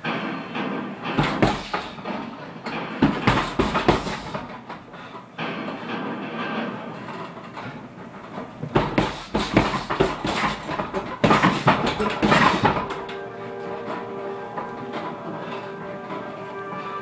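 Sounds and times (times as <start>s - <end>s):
gloved punches on heavy bag: 1.2s - 2.0s, 3.0s - 4.6s, 8.7s - 13.0s
background music: 12.0s - 17.0s.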